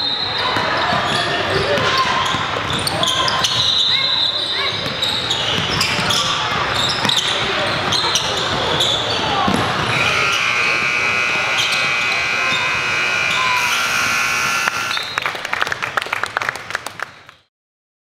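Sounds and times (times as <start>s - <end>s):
court noise: 0.0s - 17.2s
scoreboard buzzer tone: 9.9s - 15.1s.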